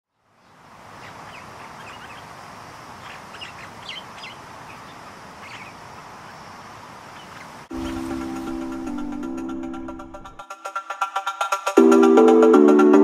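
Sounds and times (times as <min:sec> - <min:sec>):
small birds chirping: 0:00.1 - 0:09.0
steady rushing background: 0:07.6 - 0:12.7.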